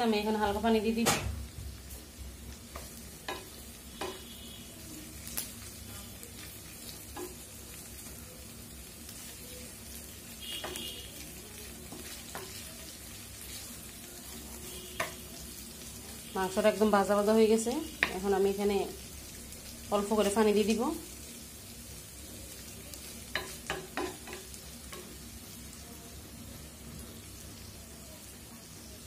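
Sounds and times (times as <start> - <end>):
chicken sizzling in a pan: 0.0 - 29.0
spatula scraping and knocking pan: 2.6 - 4.4, 23.3 - 25.2.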